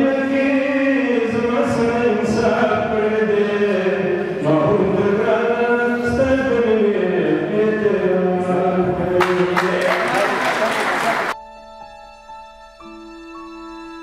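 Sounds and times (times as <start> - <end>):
man chanting into microphone: 0.0 - 10.1.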